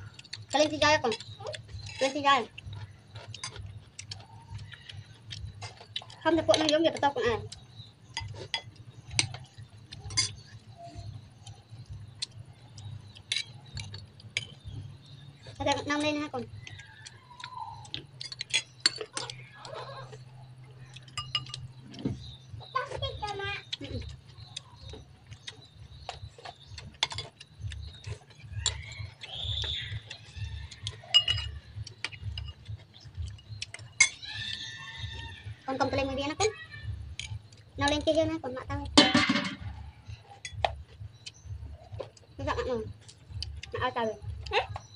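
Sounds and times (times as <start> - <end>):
spoons clinking on ceramic bowls: 8.1 - 10.6, 18.0 - 21.8, 26.6 - 32.8, 33.7 - 35.4, 39.0 - 39.7.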